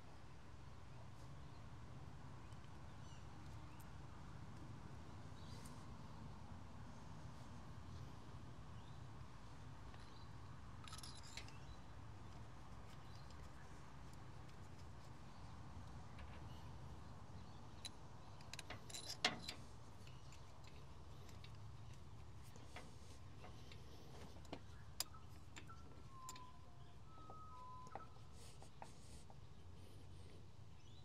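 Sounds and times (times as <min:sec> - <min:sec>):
low steady hum: 0:00.0 - 0:31.0.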